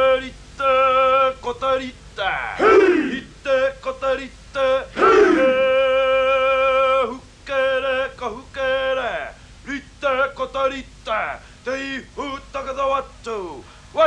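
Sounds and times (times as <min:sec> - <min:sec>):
man chanting: 0:00.0 - 0:14.0
man's sharp falling cries: 0:02.5 - 0:03.2, 0:05.0 - 0:05.8.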